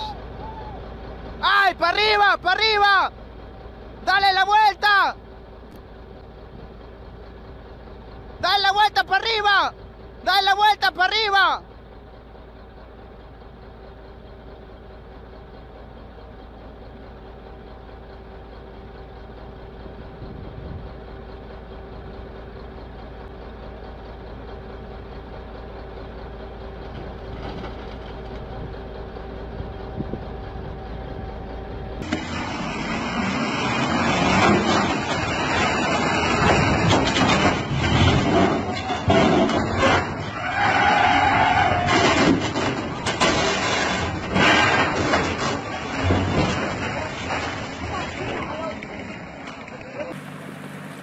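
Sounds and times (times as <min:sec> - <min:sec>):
excavator diesel engine humming: 0:00.0 - 0:51.0.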